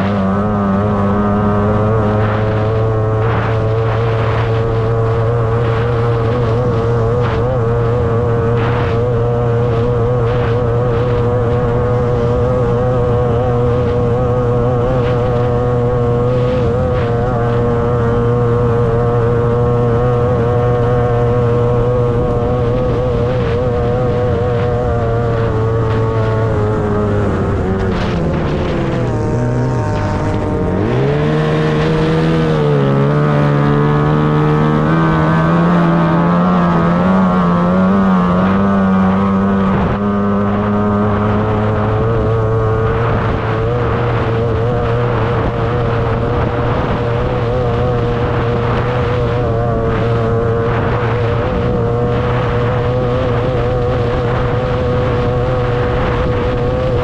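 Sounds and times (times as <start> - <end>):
outboard motor running at high pitch: 0.0 - 57.0.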